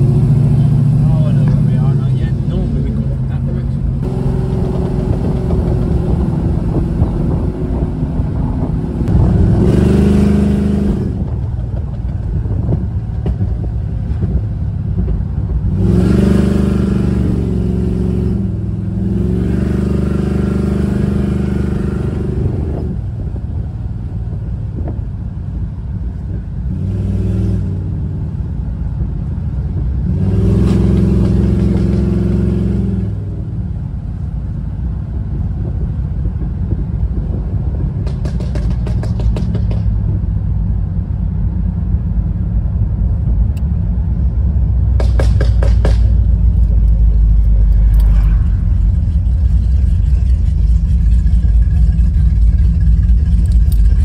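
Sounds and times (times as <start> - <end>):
car engine from inside cabin: 0.0 - 54.0.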